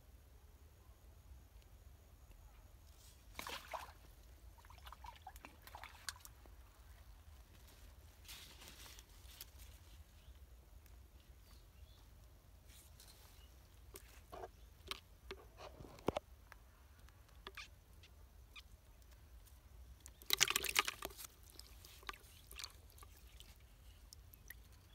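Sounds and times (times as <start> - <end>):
water splashing and sloshing: 3.3 - 6.7, 20.0 - 24.8.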